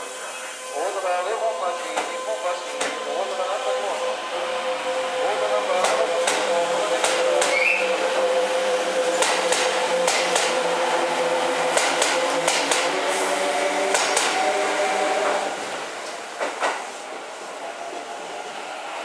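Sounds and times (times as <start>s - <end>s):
train steady hum: 0.0s - 19.0s
train wheels knocking over rail joints: 5.8s - 7.7s, 9.0s - 10.8s, 11.6s - 13.0s, 13.9s - 14.6s.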